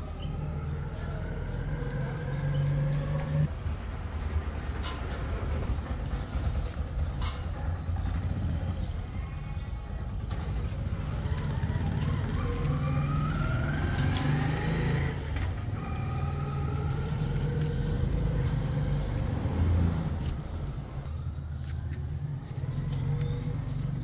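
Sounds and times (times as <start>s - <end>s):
rising engine whine: 0.0s - 3.5s, 10.7s - 21.4s
vehicle engine rumbling: 0.0s - 24.0s.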